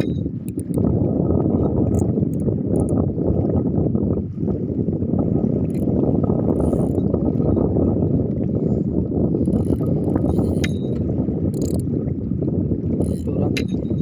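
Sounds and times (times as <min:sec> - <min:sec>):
fishing reel clicks: 0:00.0 - 0:00.8, 0:06.6 - 0:07.0, 0:09.5 - 0:11.0, 0:11.6 - 0:11.8, 0:13.0 - 0:13.8
fishing reel whirring: 0:00.0 - 0:00.8, 0:06.6 - 0:07.1, 0:09.5 - 0:11.8, 0:13.0 - 0:13.8.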